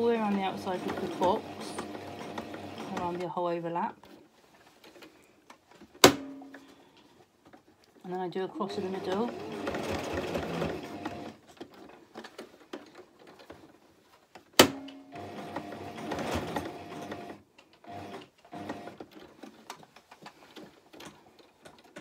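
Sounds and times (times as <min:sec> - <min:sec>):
sewing machine stitching: 0:00.0 - 0:03.3, 0:08.6 - 0:13.6, 0:14.6 - 0:22.0.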